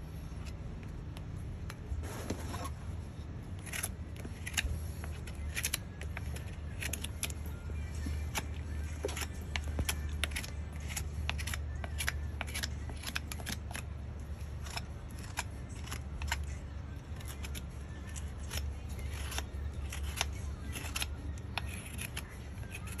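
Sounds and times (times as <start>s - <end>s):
hoof knife cutting hoof: 3.5s - 23.0s.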